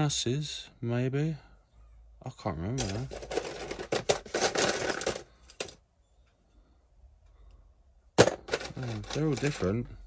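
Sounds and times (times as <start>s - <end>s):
circuit boards clattering in plastic tub: 2.8s - 5.8s, 8.2s - 9.8s.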